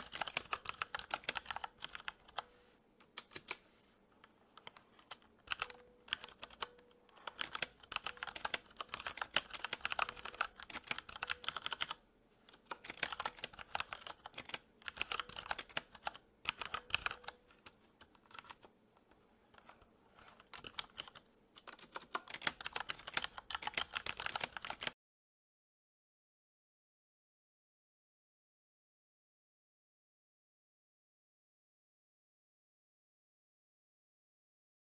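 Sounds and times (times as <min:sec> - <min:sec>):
computer keyboard typing: 0:00.0 - 0:18.7, 0:19.5 - 0:25.0.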